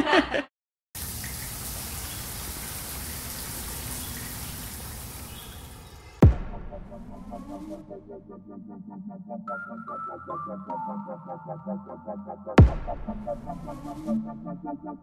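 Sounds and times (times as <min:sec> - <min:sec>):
shower water spraying: 0:01.0 - 0:06.2
loud deep hit: 0:06.2 - 0:06.9, 0:12.6 - 0:13.3.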